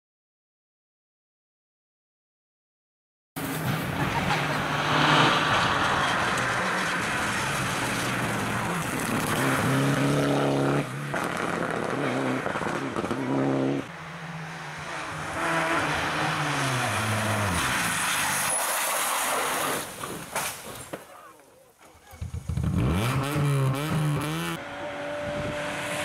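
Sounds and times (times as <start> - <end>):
tyre and road noise: 3.4 - 26.0
car engine revving hard: 4.4 - 13.9, 22.5 - 26.0.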